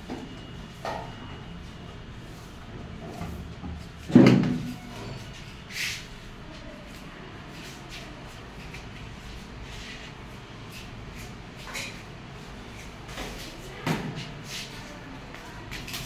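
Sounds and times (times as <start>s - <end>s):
broom sweeping concrete floor: 4.6s - 15.9s.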